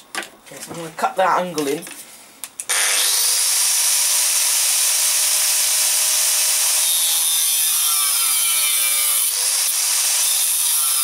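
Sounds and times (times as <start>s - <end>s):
angle grinder whining: 2.7s - 11.0s
grinder disc cutting steel bar: 2.7s - 11.0s.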